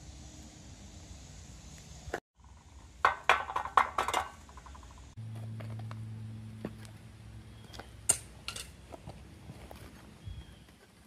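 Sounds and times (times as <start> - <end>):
metal tools clinking: 8.1 - 8.8.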